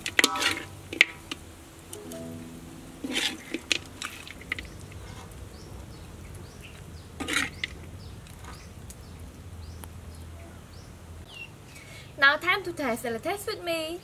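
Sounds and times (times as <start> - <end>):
small birds chirping: 4.6 - 12.2.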